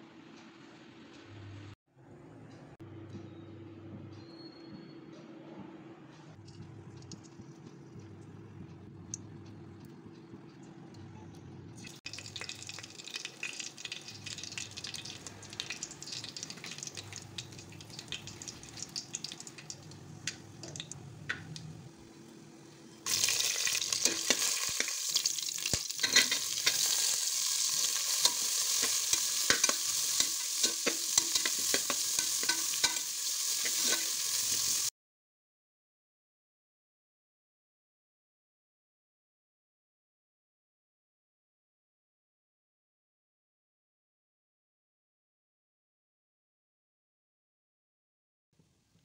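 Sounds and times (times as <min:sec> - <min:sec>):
rice boiling in water: 0:11.8 - 0:20.8, 0:23.1 - 0:34.9
spices sizzling in hot oil: 0:11.8 - 0:21.6, 0:23.0 - 0:34.9.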